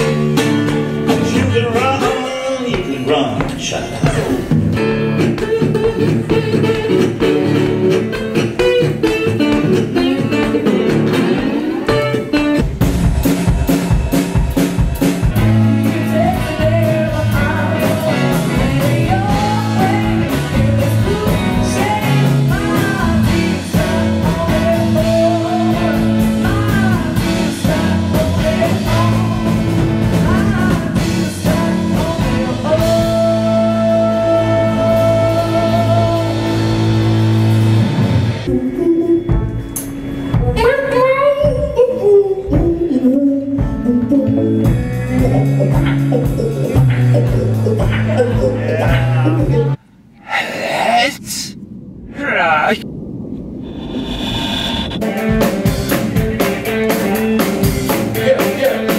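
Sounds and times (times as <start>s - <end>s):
guitar: 0.0s - 49.8s, 54.9s - 58.9s
drums: 0.0s - 50.4s, 51.0s - 58.9s
woman singing: 15.4s - 36.6s, 38.5s - 39.7s, 40.5s - 49.8s.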